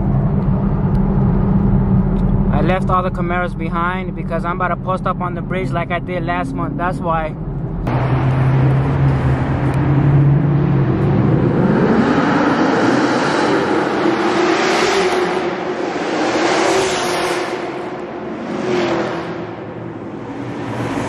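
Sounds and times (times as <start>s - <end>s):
car engines accelerating: 0.0s - 21.0s
cars passing close by: 7.8s - 21.0s.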